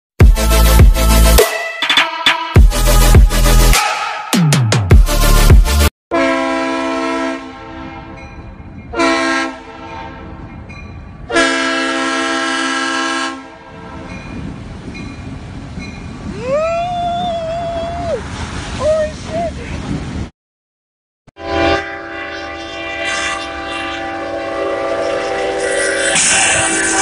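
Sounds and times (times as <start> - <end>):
locomotive air horn blasts: 6.1 - 8.2, 8.9 - 10.4, 11.3 - 14.0, 21.4 - 27.0
train rumble: 7.1 - 20.3, 21.8 - 27.0.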